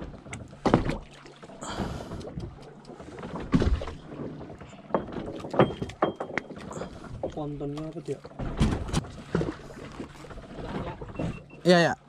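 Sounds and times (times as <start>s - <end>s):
knocks on wooden boat: 0.0s - 1.1s, 3.4s - 6.6s, 7.2s - 9.6s.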